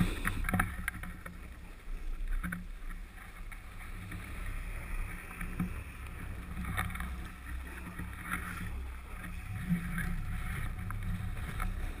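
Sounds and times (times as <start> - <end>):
wind rumbling on microphone: 0.0 - 12.0.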